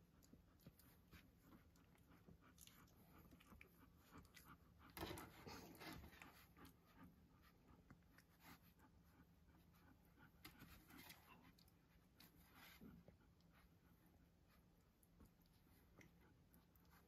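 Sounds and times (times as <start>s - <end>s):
puppies suckling wet clicks: 0.0s - 6.8s
puppies rustling on blanket: 0.3s - 17.0s.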